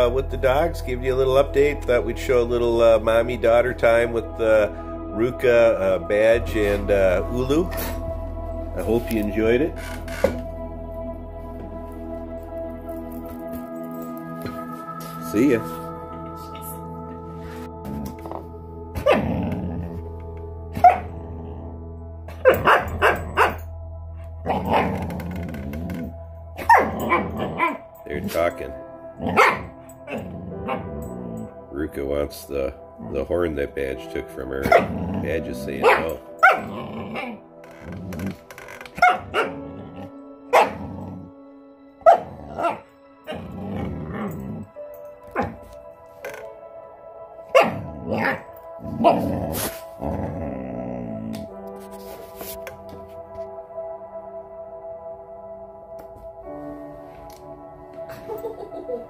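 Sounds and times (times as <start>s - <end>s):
background music: 0.0s - 59.0s
puppies barking: 22.4s - 23.6s, 29.2s - 30.9s, 35.8s - 37.4s, 39.0s - 39.6s, 40.5s - 40.8s
puppies growling: 34.6s - 41.4s, 42.1s - 45.8s, 47.6s - 51.5s.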